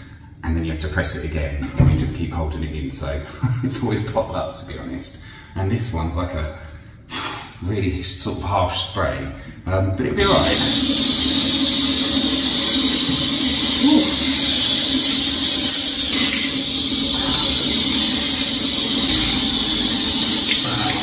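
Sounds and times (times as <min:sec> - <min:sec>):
shower spray hissing: 0:10.2 - 0:21.0.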